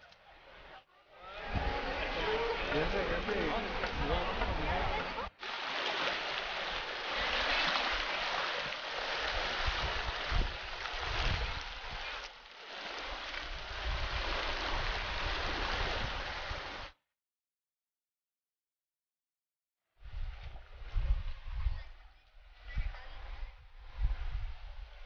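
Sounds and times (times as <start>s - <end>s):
river rushing over stones: 1.6s - 16.9s.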